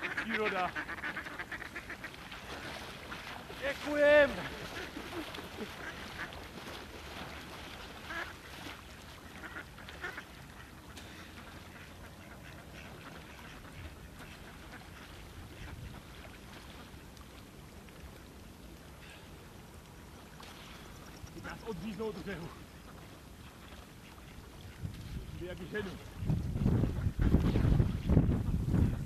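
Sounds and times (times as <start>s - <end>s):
ducks quacking: 0.0s - 16.9s.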